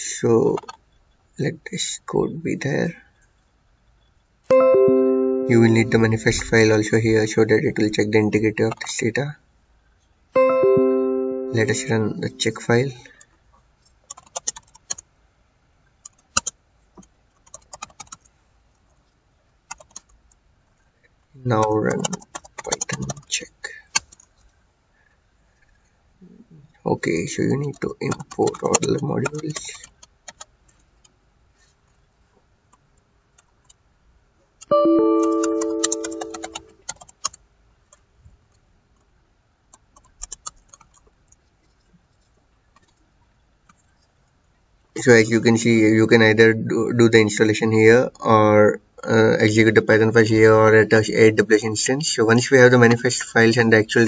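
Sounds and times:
ringing tone: 0:04.5 - 0:06.5, 0:10.4 - 0:12.6, 0:34.7 - 0:36.7
computer keyboard typing: 0:14.1 - 0:15.0, 0:17.4 - 0:18.2, 0:19.7 - 0:20.1, 0:21.9 - 0:23.2, 0:34.7 - 0:37.4.

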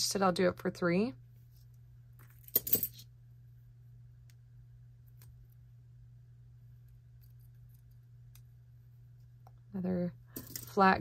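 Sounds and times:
metal jewelry clinking: 0:02.2 - 0:03.0, 0:10.4 - 0:10.8.

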